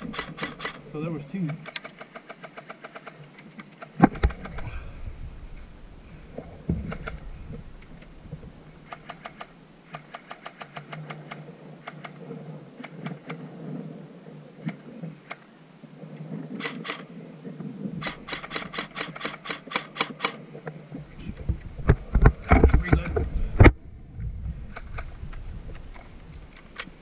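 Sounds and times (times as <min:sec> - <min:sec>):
airsoft guns firing: 0:00.0 - 0:00.9, 0:03.9 - 0:04.8, 0:05.4 - 0:11.1, 0:18.0 - 0:20.4.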